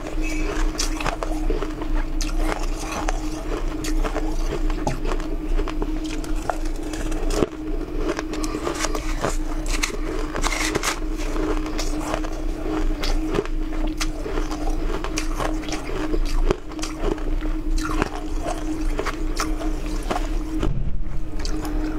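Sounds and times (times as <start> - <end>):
ice crunching being chewed: 0.0 - 20.7, 21.4 - 21.9
low hum: 0.0 - 21.9
spoon scraping ice in bowl: 8.5 - 11.0.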